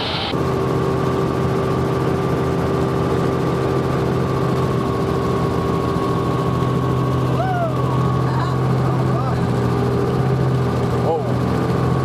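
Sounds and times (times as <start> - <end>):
rushing noise: 0.0 - 0.4
helicopter engine and rotor hum: 0.0 - 12.0.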